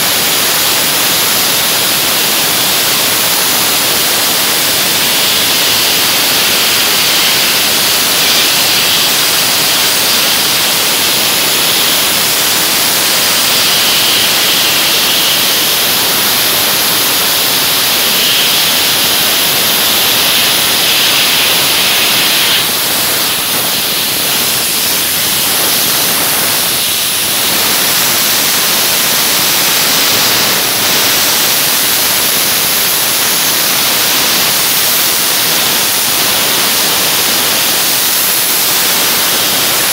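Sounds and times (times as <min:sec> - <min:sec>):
dry ice blasting hiss: 0:00.0 - 0:39.9.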